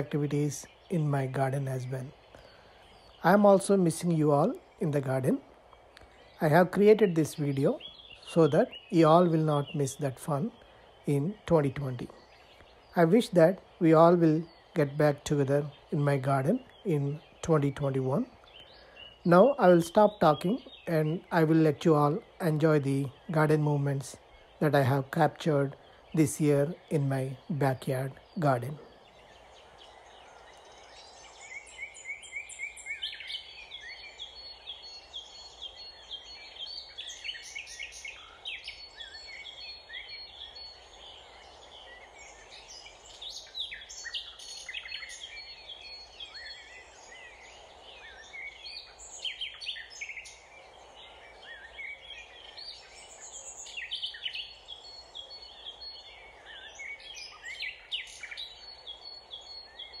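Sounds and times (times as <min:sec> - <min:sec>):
songbirds chirping: 0:00.0 - 1:00.0.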